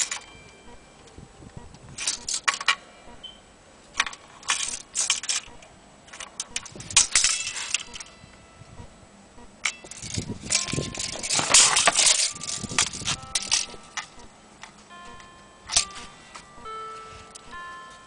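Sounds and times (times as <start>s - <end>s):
tape measure jangling on zither strings: 2.0s - 2.7s, 4.4s - 5.5s, 6.1s - 8.1s, 9.6s - 14.2s, 15.7s - 16.2s.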